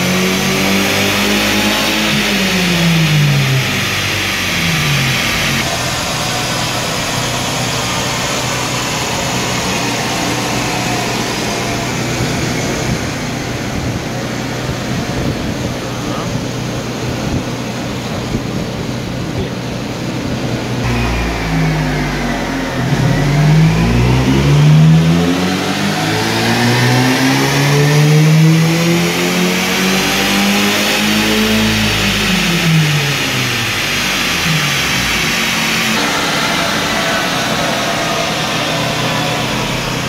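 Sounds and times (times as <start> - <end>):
car engine revving: 0.0 - 17.2, 20.6 - 40.0
tyre and roller whine: 20.5 - 40.0.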